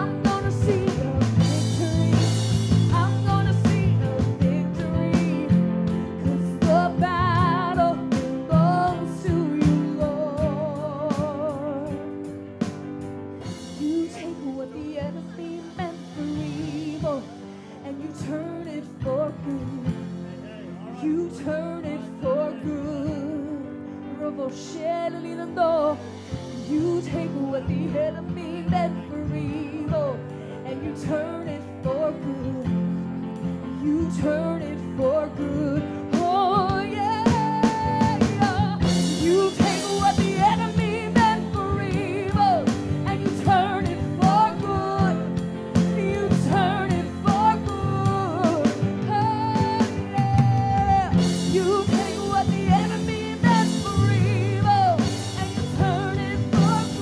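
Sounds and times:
women singing: 0.0 - 12.0, 13.7 - 20.0, 33.8 - 57.0
drums and cymbals: 0.0 - 17.8, 26.0 - 27.7, 36.0 - 57.0.

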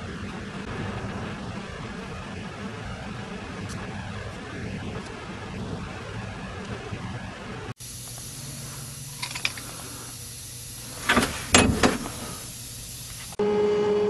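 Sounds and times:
sandblaster hissing: 0.0 - 13.4
sandblast cabinet hum: 0.0 - 14.0
metal parts clattering on grate: 9.2 - 9.8.

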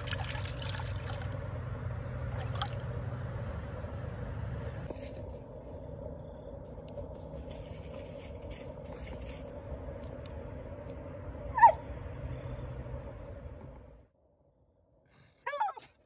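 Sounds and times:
steady low hum: 0.0 - 15.1
dog yelping: 11.5 - 11.8, 15.5 - 15.9.

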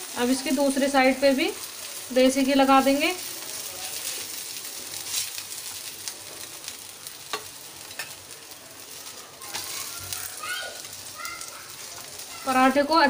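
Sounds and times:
ghee sizzling on a pan: 0.0 - 13.0
spoon tapping and scraping pan: 7.3 - 8.2.

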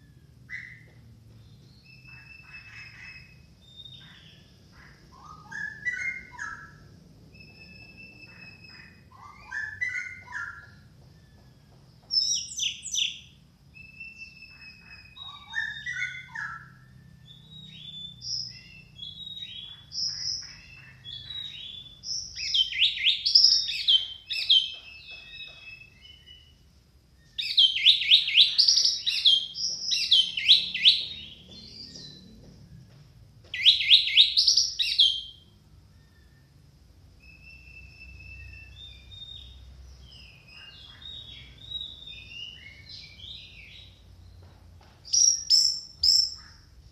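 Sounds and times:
thrush singing whistled phrases: 5.2 - 10.8, 12.2 - 25.2, 27.2 - 31.4, 37.2 - 39.6
rapid bird chattering: 18.4 - 25.9.

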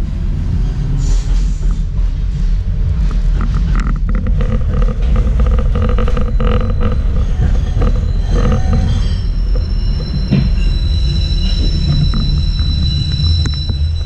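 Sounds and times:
tram rumbling: 0.0 - 14.0
thin high whine: 4.1 - 14.0.

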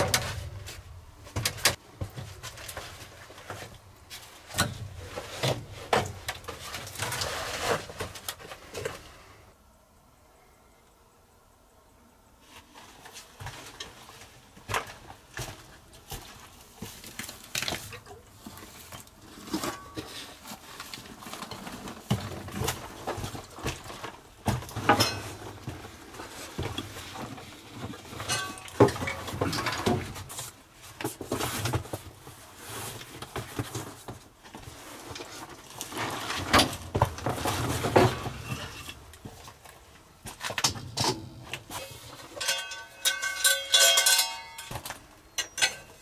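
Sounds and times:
camping gear rustling: 0.0 - 9.5, 12.4 - 46.0
light metal clinks: 42.4 - 44.7.

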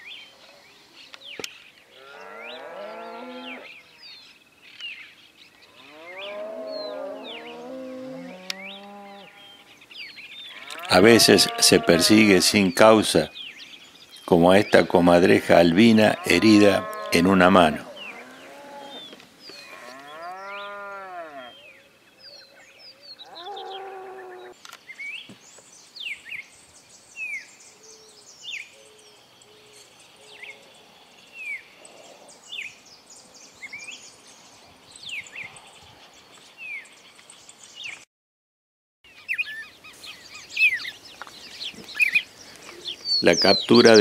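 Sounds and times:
cow mooing: 2.0 - 3.7, 5.8 - 9.6, 10.6 - 12.6, 16.0 - 21.6, 23.3 - 24.5
small bird chirping: 39.1 - 44.0.

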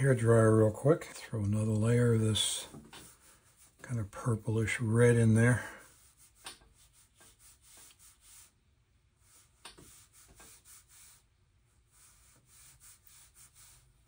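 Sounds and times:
brush rubbing on paper: 1.6 - 14.0.

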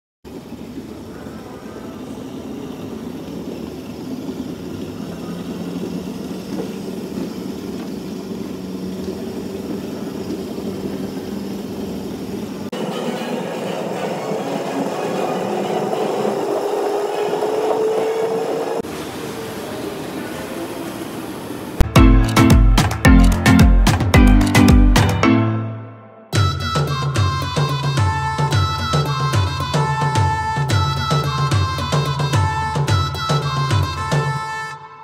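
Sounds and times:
go-kart motor whine: 1.2 - 21.8.

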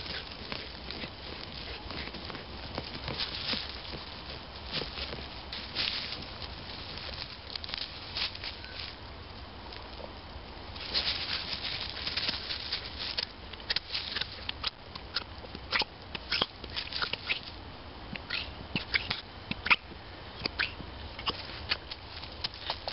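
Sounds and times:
dog scratching in soil: 0.0 - 8.9, 10.7 - 17.6, 20.5 - 22.9
dry leaves crackling: 0.0 - 22.9.

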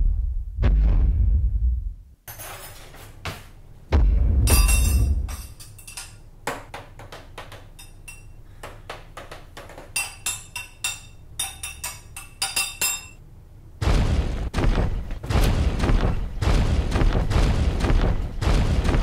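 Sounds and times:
heavy footstep thud: 3.3 - 5.3
spoon clinking against mug: 7.7 - 8.4, 9.9 - 13.2.

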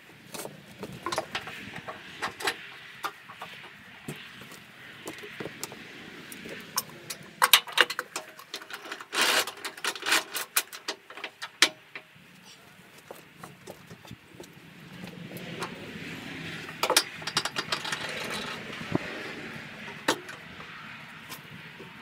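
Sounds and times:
metal clamps clicking and clanking: 0.4 - 3.7, 6.8 - 12.1, 16.7 - 19.0.

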